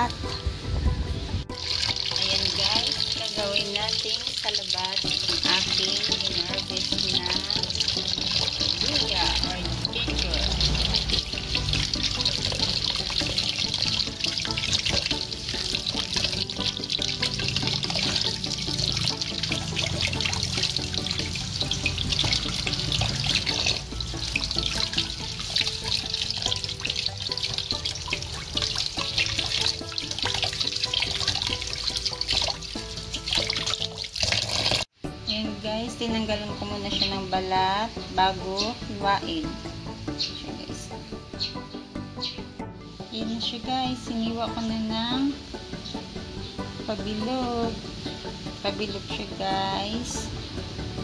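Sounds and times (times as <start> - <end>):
background music: 0.0 - 51.0
tap water splashing into metal bowl: 1.6 - 34.8.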